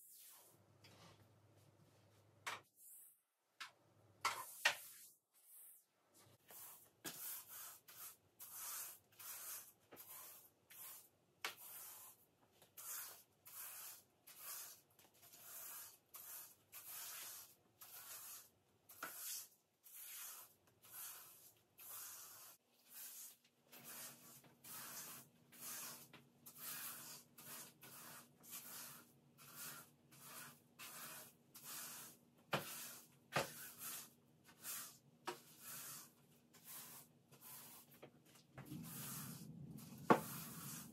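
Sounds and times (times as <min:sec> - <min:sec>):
hand rubbing a surface: 0:32.9 - 0:40.9.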